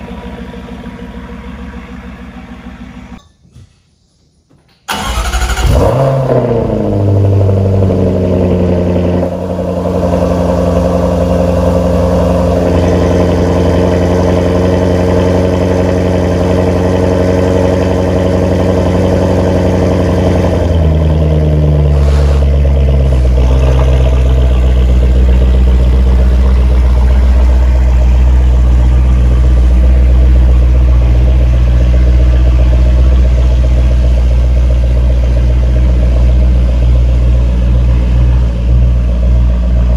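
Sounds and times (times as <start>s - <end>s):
car engine starting and idling: 0.0s - 3.2s, 4.7s - 39.9s.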